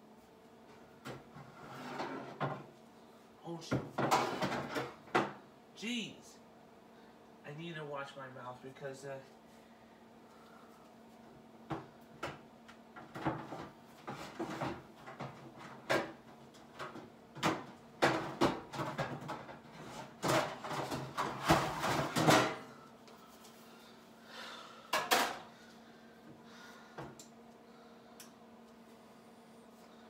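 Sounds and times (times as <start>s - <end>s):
cabinets and drawers opened and shut: 1.0s - 2.7s, 3.7s - 5.4s, 13.0s - 22.6s.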